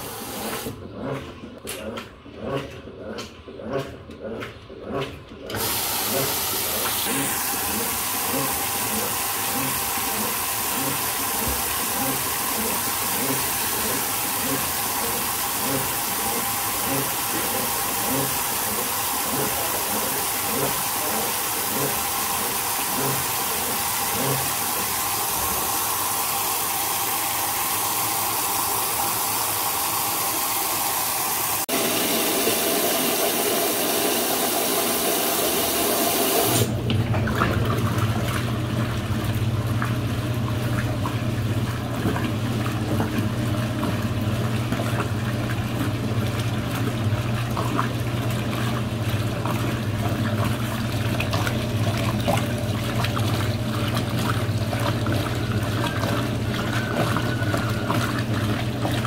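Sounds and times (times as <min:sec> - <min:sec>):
water rushing into washing machine: 0:00.0 - 0:59.0
low machine hum: 0:36.6 - 0:59.0.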